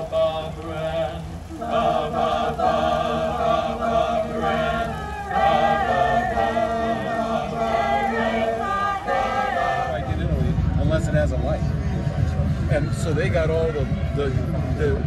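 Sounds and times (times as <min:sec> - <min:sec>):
mixed choir singing: 0:00.0 - 0:10.4.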